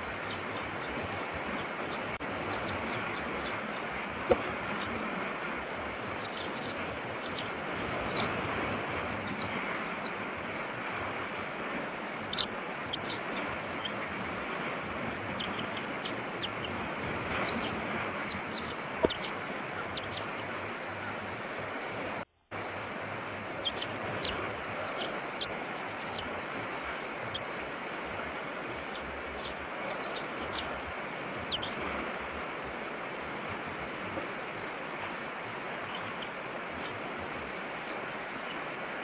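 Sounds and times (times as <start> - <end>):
wind and surf: 0.0 - 39.0
eaglet peeping: 6.0 - 8.3, 12.2 - 14.0, 15.3 - 20.4, 23.6 - 26.3, 28.7 - 30.8, 31.4 - 31.8.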